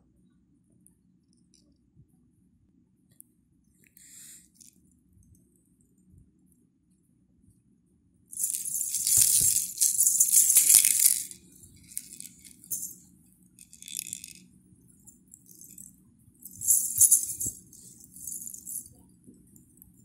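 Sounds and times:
plastic baby rattle shaking: 0:08.4 - 0:13.0, 0:13.6 - 0:14.4, 0:15.3 - 0:19.0.

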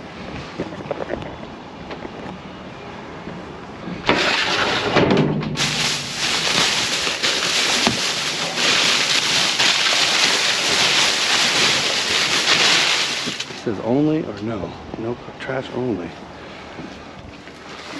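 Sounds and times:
plastic garbage bags rustling: 0:04.2 - 0:13.7.

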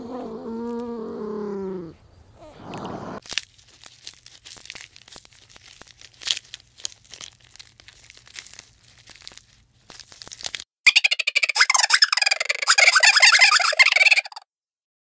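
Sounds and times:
giraffe chewing twigs and leaves: 0:03.2 - 0:10.6
twigs snapping: 0:03.2 - 0:10.6.

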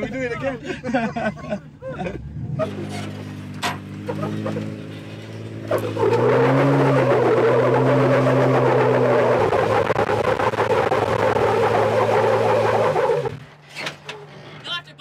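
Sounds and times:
engine pulling under load: 0:02.2 - 0:13.8.

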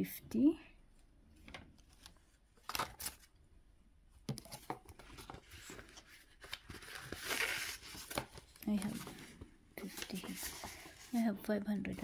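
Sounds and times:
paper rustling: 0:01.4 - 0:03.3, 0:04.3 - 0:12.0.

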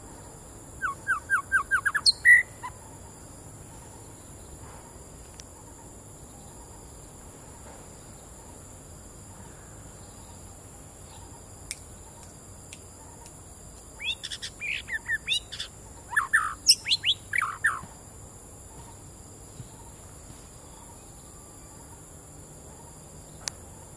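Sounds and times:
bird singing whistled notes: 0:00.8 - 0:03.1, 0:14.0 - 0:17.9.

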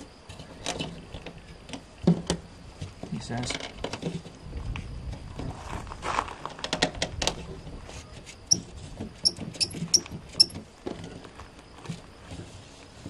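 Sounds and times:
plastic grille clicking and squeaking: 0:09.2 - 0:10.6.

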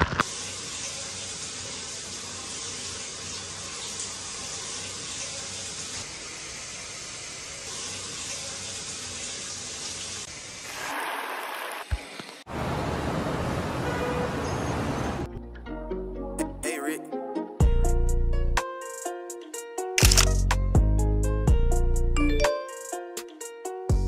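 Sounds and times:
water running from shower and tap: 0:00.0 - 0:12.5.

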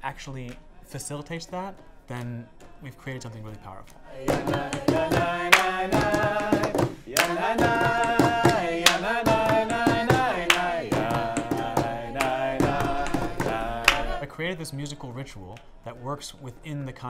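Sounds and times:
group of voices singing: 0:00.2 - 0:16.1
hand claps: 0:04.2 - 0:14.2.

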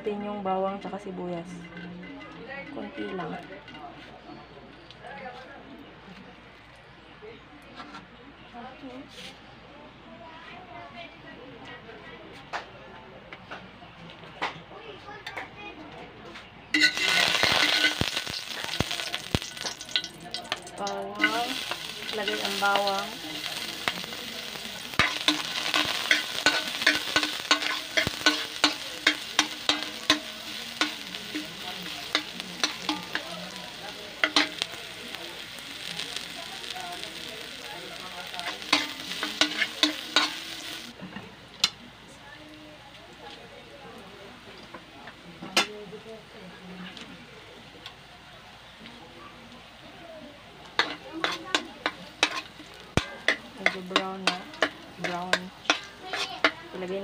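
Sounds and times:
garlic sizzling in hot oil: 0:16.7 - 0:47.0, 0:47.6 - 0:57.0
metal spatula scraping a wok: 0:16.8 - 0:40.9, 0:50.7 - 0:57.0.

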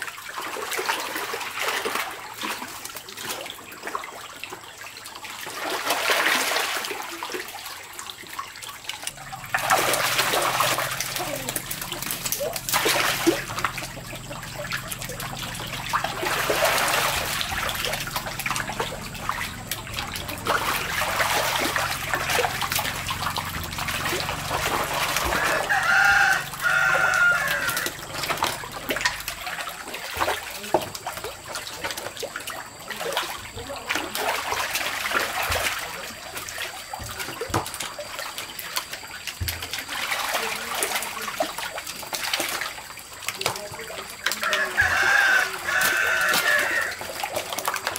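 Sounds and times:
catfish splashing in water: 0:00.0 - 0:47.9
rooster crowing: 0:24.8 - 0:28.6, 0:44.4 - 0:47.2.

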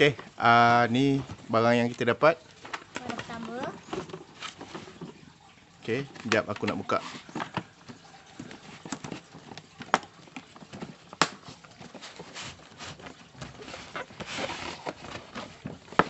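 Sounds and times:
case scraping slide: 0:12.0 - 0:16.0.

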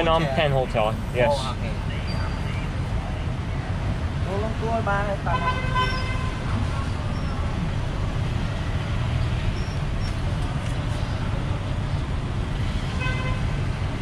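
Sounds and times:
tuk-tuk engine rumble: 0:00.0 - 0:14.0
vehicle horn toot: 0:05.3 - 0:06.4.

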